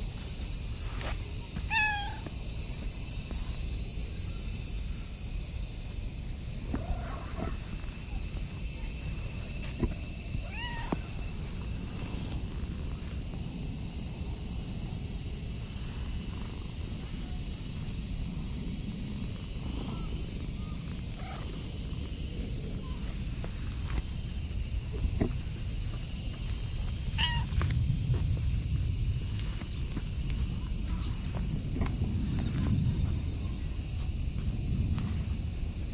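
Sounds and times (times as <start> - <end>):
high-pitched hiss: 0.0 - 35.9
cat meowing: 1.7 - 2.2, 10.4 - 11.0, 27.2 - 27.6
low rumble: 26.7 - 35.8.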